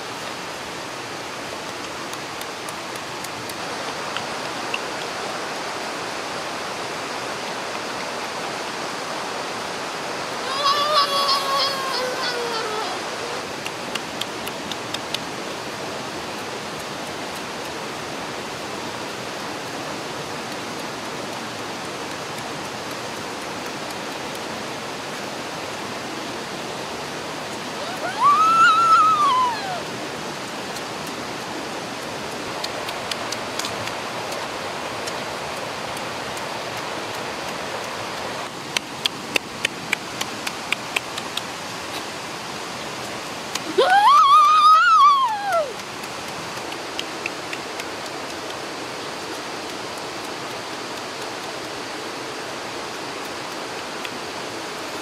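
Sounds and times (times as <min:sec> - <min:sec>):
waterfall and stream rushing: 0:00.0 - 0:55.0
child's voice: 0:10.4 - 0:13.5.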